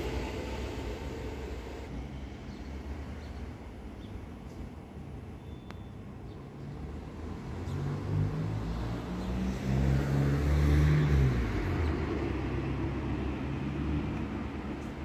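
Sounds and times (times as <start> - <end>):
hiss of rolling noise: 0.0 - 1.9.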